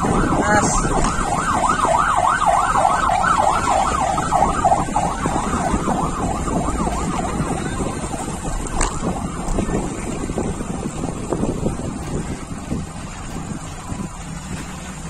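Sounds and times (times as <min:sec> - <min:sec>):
siren yelping: 0:00.0 - 0:10.8
road noise: 0:00.0 - 0:15.0
wind noise: 0:00.0 - 0:15.0.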